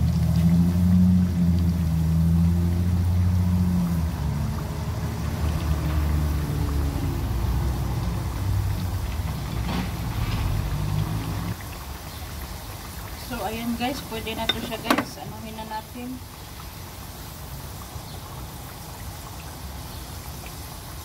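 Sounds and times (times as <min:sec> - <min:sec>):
low engine-like rumble: 0:00.0 - 0:11.7
potato slices sizzling in oil: 0:00.0 - 0:21.0.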